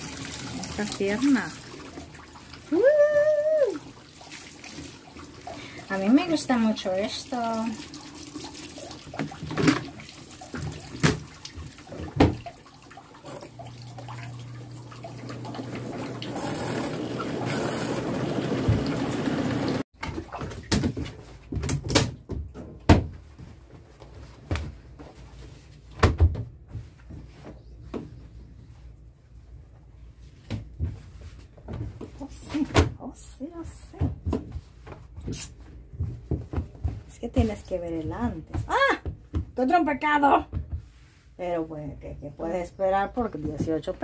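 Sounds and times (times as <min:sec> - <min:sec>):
water pouring into drum: 0:00.0 - 0:19.8
knocks and rustles: 0:20.0 - 0:28.5, 0:30.3 - 0:39.8, 0:40.4 - 0:41.1.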